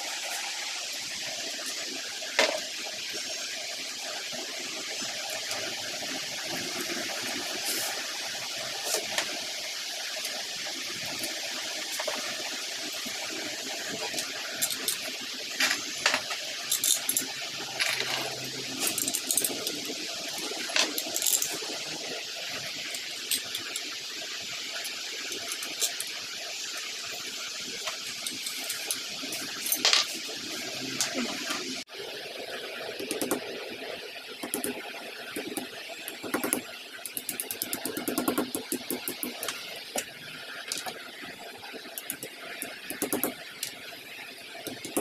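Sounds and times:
steady hiss: 0.0 - 32.0.

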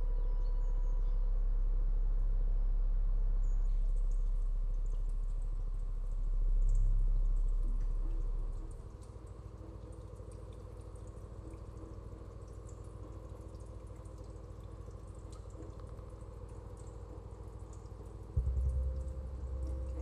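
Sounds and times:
deep bass note: 0.0 - 8.8, 18.4 - 20.0
steady hum of held tones: 0.0 - 20.0.

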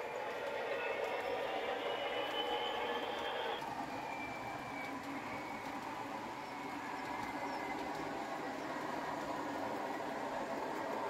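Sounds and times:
faint high motor whine: 0.0 - 11.0.

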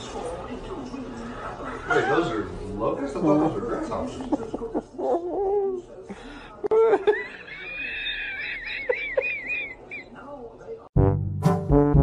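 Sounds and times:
person laughing: 6.7 - 10.2.

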